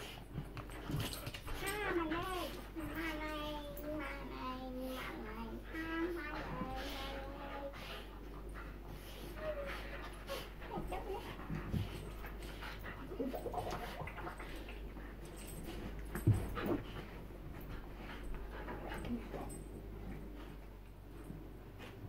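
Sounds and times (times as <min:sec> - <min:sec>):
dogs panting: 0:00.0 - 0:22.0
dogs making high vocal noises: 0:04.2 - 0:17.1.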